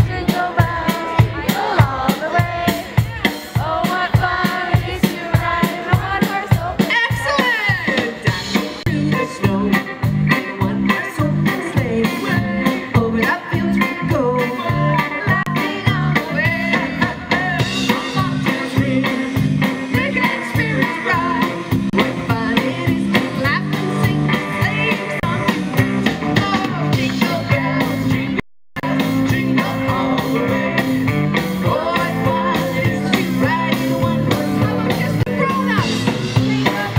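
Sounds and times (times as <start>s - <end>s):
woman singing: 0.0s - 9.8s, 10.6s - 19.2s, 19.9s - 25.6s, 31.7s - 36.9s
drum kit beat: 0.0s - 36.9s
electric guitar: 4.4s - 36.9s.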